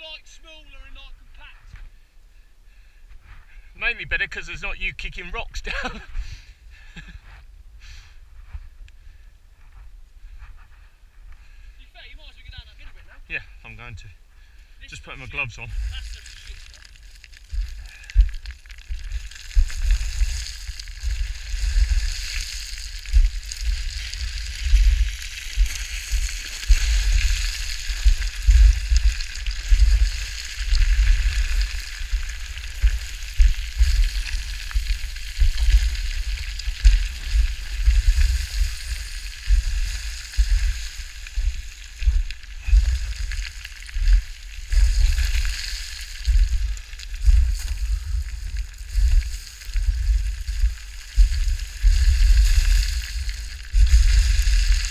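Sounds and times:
steady hiss: 0:14.4 - 0:54.9
wind buffeting microphone: 0:17.5 - 0:54.9.

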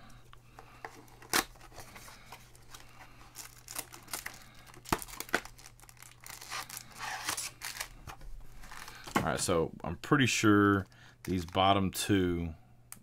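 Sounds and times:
card pack wrappers crinkling: 0:00.6 - 0:09.2, 0:10.7 - 0:11.7.

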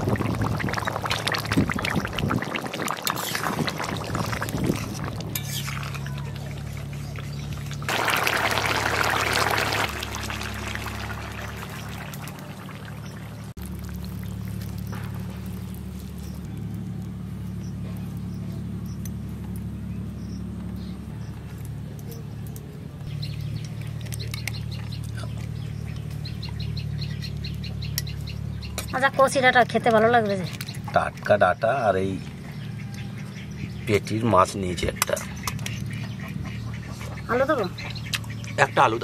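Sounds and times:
curry bubbling loudly: 0:00.0 - 0:16.5
low steady hum: 0:00.0 - 0:33.9
bird chirps: 0:30.3 - 0:34.2.

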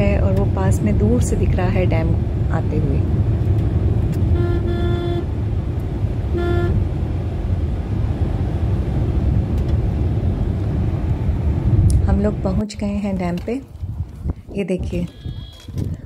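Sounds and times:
car engine and tyre rumble: 0:00.0 - 0:16.0
vehicle horn honking: 0:04.2 - 0:05.3, 0:06.3 - 0:06.8, 0:15.0 - 0:15.7.

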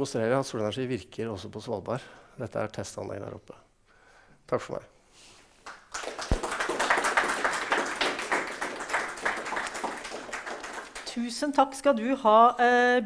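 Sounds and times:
audience applauding: 0:05.6 - 0:11.2.

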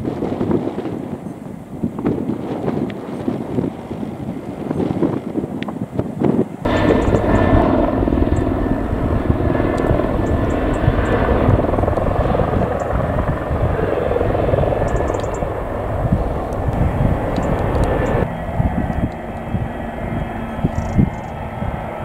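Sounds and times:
faint jet engine whine: 0:00.0 - 0:22.0
jet engines rumbling: 0:00.0 - 0:22.0.

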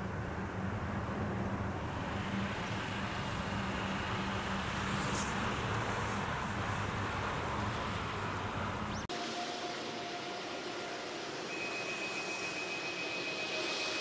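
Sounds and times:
low vehicle hum: 0:00.0 - 0:09.1
distant traffic: 0:00.0 - 0:14.0
brief hiss: 0:04.7 - 0:06.3.

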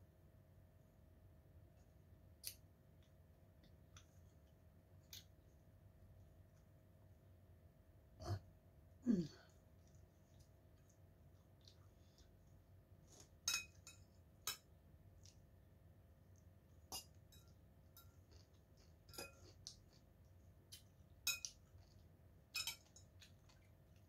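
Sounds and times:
faint steady hum: 0:00.0 - 0:24.0
spoon clinking on ceramic bowl: 0:13.5 - 0:14.7, 0:21.2 - 0:21.6, 0:22.6 - 0:23.1.

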